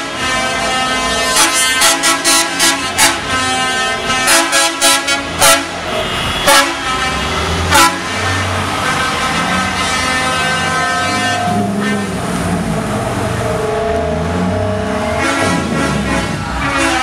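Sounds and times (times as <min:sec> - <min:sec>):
horns tooting: 0:00.0 - 0:17.0
low vehicle rumble: 0:06.8 - 0:17.0.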